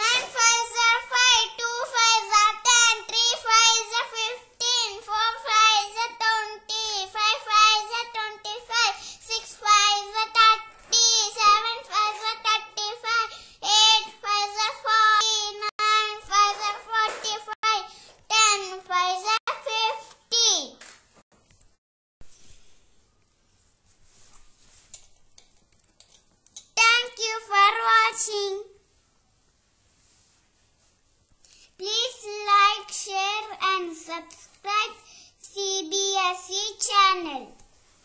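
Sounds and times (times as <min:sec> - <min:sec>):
child chanting: 0:00.0 - 0:20.8, 0:31.8 - 0:37.6.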